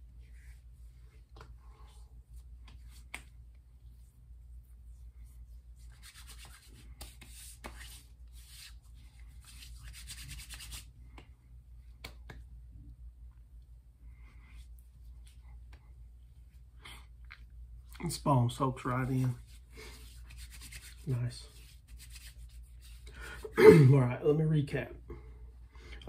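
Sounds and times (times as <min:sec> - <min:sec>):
hands rubbing skin swishing: 0:00.0 - 0:12.5, 0:14.2 - 0:16.7, 0:18.8 - 0:23.5.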